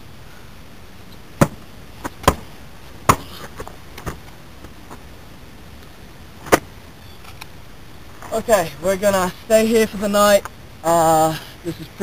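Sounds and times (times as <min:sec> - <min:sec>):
sharp knocks: 0:01.4 - 0:02.5.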